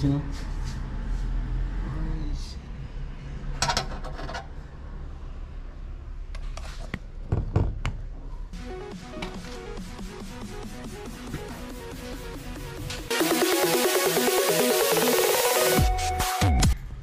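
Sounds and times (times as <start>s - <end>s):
parts clattering and knocking: 3.6s - 4.6s
background music: 8.5s - 16.8s.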